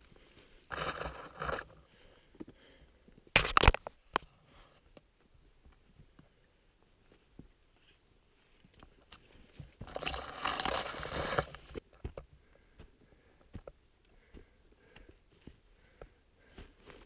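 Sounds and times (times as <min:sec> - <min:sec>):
soft footsteps on trail: 0:00.0 - 0:02.9, 0:11.1 - 0:17.0.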